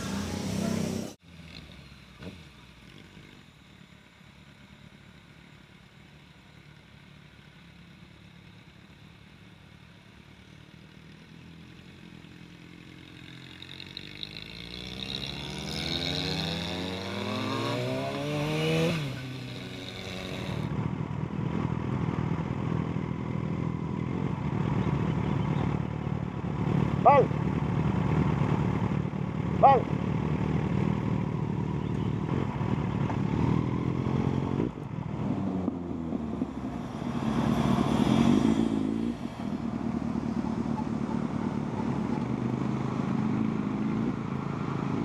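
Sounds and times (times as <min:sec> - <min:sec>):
motorcycle engine accelerating: 0:00.0 - 0:05.2, 0:10.4 - 0:45.0.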